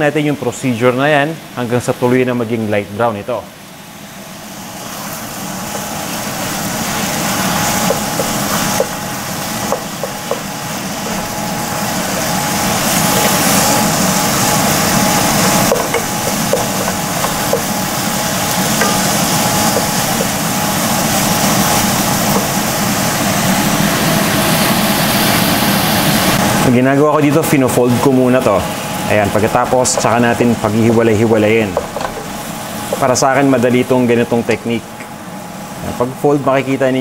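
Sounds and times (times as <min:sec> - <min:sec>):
meat sizzling in oil: 0:03.6 - 0:26.6, 0:27.8 - 0:35.8
wooden spoon scraping a pan: 0:05.6 - 0:23.1.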